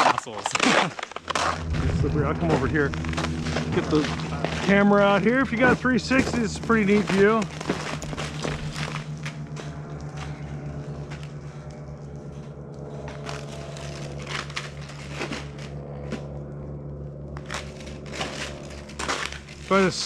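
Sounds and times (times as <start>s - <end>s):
footsteps crunching snow: 0.0s - 12.1s
steady low hum: 0.0s - 20.0s.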